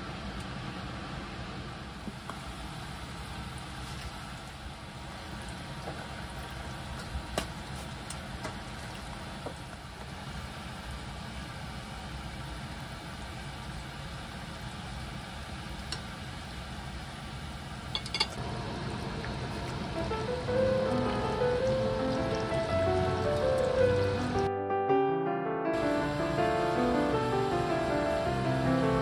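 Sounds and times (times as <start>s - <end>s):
sauce simmering in frying pan: 18.4s - 24.5s.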